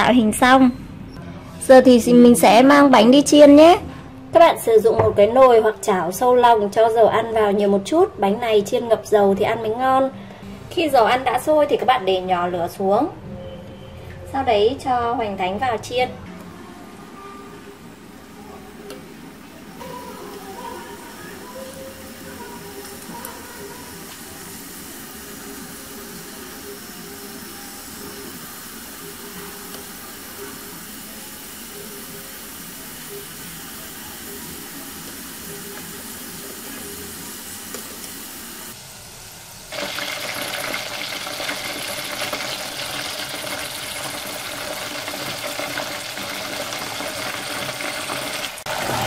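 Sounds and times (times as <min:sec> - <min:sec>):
food deep-frying in oil: 0:19.7 - 0:49.0.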